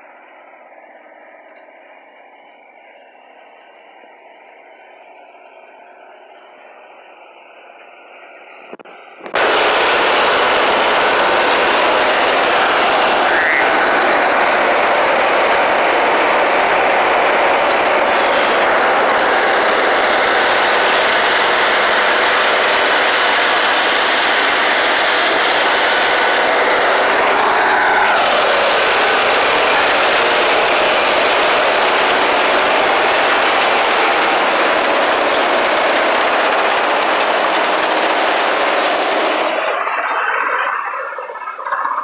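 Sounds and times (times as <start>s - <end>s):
grinder engine and mill noise: 6.4s - 42.0s
wood chips pouring off conveyor: 9.4s - 39.9s.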